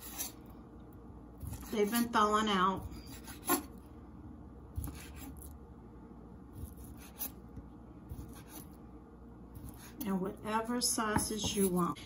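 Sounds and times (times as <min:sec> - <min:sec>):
knife cutting on wooden board: 0:00.0 - 0:00.4, 0:01.4 - 0:02.1, 0:02.8 - 0:03.8, 0:04.8 - 0:05.5, 0:06.6 - 0:07.4, 0:08.1 - 0:08.8, 0:09.6 - 0:10.1.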